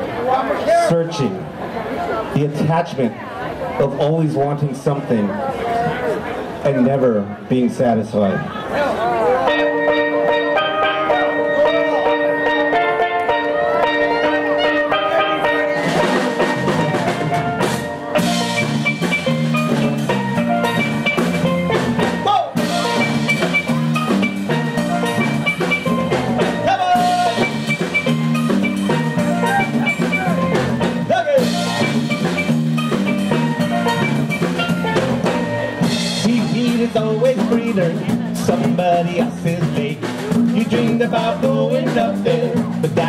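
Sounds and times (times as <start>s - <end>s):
steelpans playing melody: 9.4s - 38.0s
bass line: 9.4s - 43.0s
drum kit: 9.5s - 43.0s.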